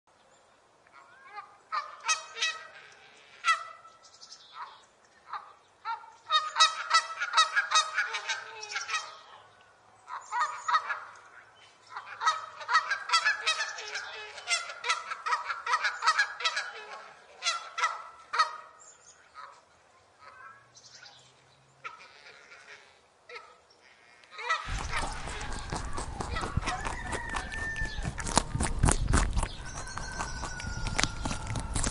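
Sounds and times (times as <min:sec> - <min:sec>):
geese honking: 0:06.3 - 0:09.3, 0:11.9 - 0:18.8, 0:21.8 - 0:28.4.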